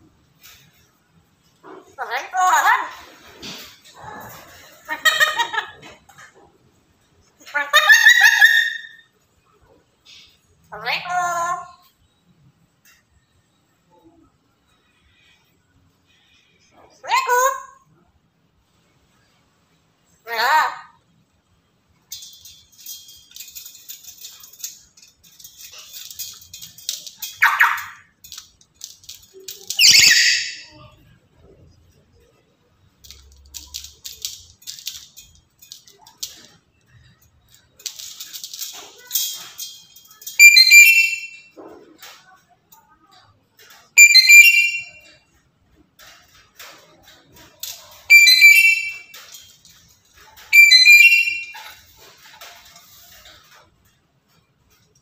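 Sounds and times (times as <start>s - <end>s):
parrot chattering: 1.6s - 6.4s, 7.3s - 9.0s, 10.7s - 11.9s, 16.9s - 17.9s, 20.2s - 21.0s, 22.6s - 31.0s, 40.1s - 41.9s, 44.0s - 45.1s, 48.0s - 49.2s, 50.3s - 51.8s
bird shrill whistling calls: 29.8s - 30.7s, 40.4s - 41.4s, 44.0s - 45.0s, 48.1s - 49.1s, 50.5s - 51.6s
parrot harsh screech: 29.8s - 30.7s, 44.0s - 45.0s, 48.1s - 49.1s, 50.5s - 51.6s.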